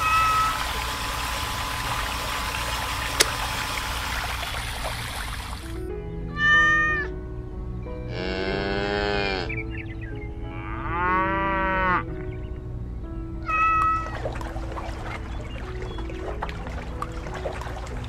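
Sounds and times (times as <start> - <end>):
animal calls: 0.0 - 1.0, 13.5 - 16.4
background music: 0.0 - 18.0.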